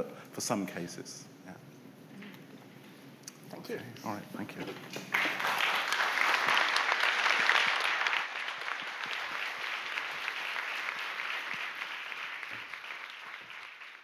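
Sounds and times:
audience applause: 5.0 - 14.0.

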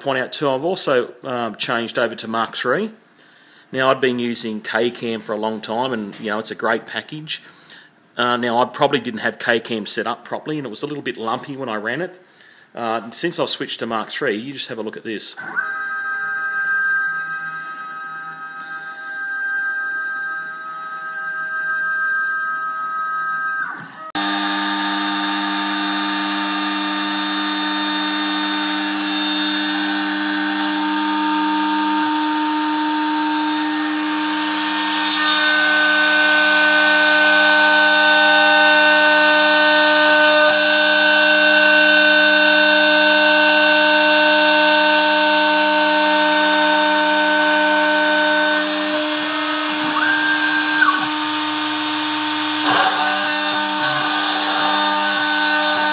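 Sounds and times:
spindle motor whine: 15.4 - 55.9
end mill cutting metal: 24.2 - 55.9.

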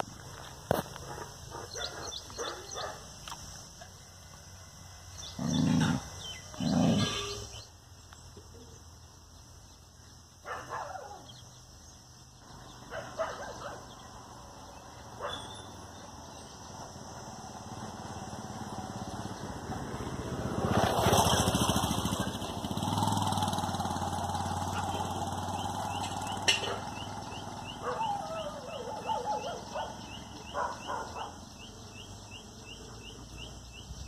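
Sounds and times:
dog growling: 5.3 - 7.4.

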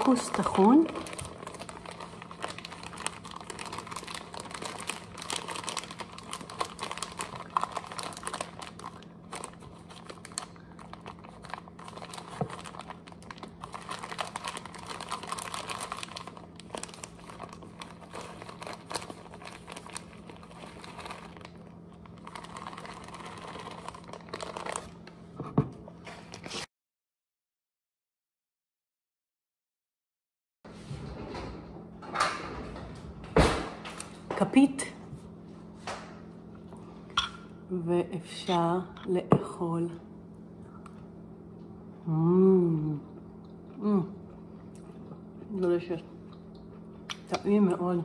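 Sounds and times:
plastic bag crinkling: 0.0 - 25.2.

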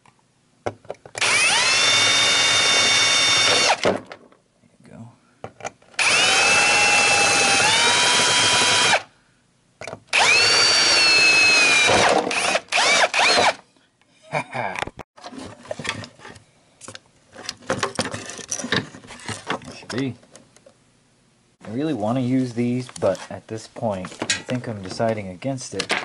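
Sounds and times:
power drill whining: 1.2 - 3.8, 6.0 - 9.1, 10.1 - 13.6
small metal parts rattling: 17.4 - 20.1.

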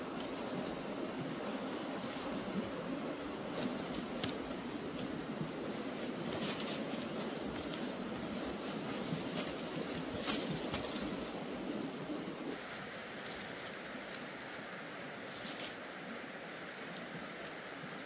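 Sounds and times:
steady background hiss: 0.0 - 18.0
weeds rustling and tearing: 5.9 - 11.2, 12.5 - 16.0.

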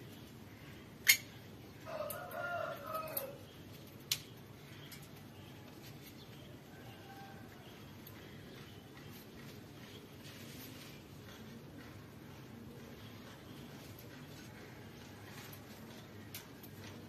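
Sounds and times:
rooster crowing: 1.8 - 3.4, 6.7 - 7.7.

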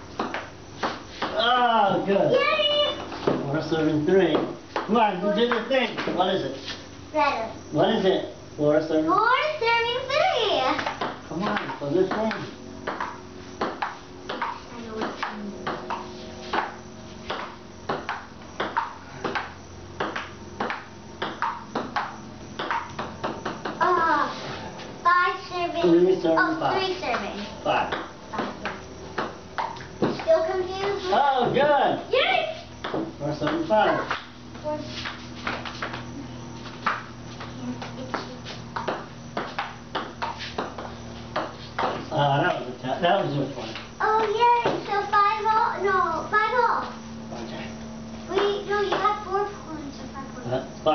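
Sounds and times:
steady low hum: 0.0 - 50.9
ping pong ball taps: 10.8 - 16.7, 17.3 - 23.8, 27.9 - 30.2, 32.8 - 34.2, 36.8 - 37.0, 38.8 - 42.0.

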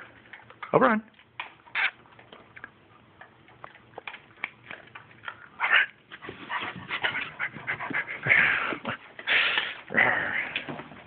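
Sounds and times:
large dog making rough vocal noises: 7.1 - 10.8.

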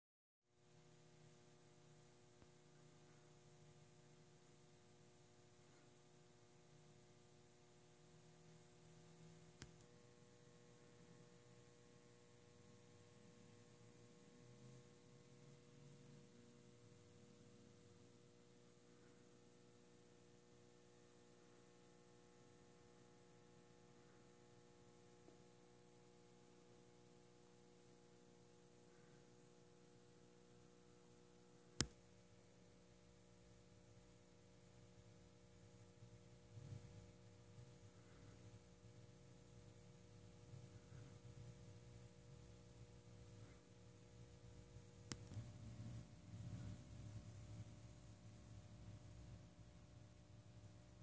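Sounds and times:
faint hum and hiss: 0.5 - 51.0
faint click: 9.6 - 9.9, 31.8 - 32.1, 45.0 - 45.5
small tick: 9.6 - 9.9, 31.8 - 32.0, 45.0 - 45.5.

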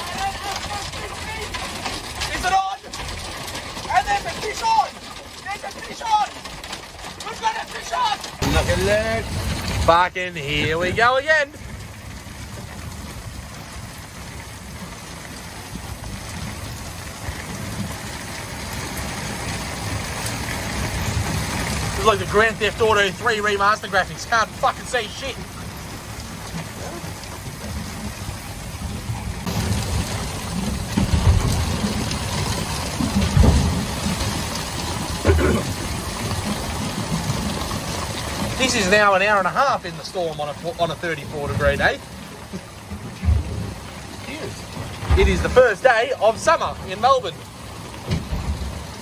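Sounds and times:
heavy rain on water and boat: 0.0 - 49.0
low rumble: 8.2 - 39.9
wind buffeting microphone: 8.4 - 39.4.

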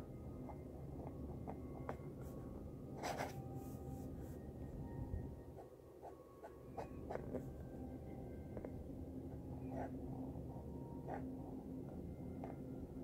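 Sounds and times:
pen nib scratching on paper: 3.0 - 4.3, 9.6 - 10.0, 11.0 - 11.4.

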